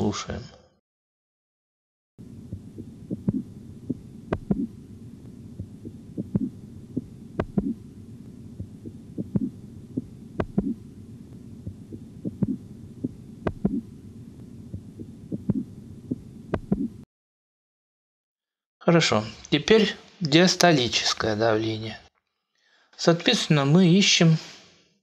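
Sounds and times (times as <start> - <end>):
steady low rumble: 2.2 - 16.8
soft thudding heart tones: 2.2 - 17.0.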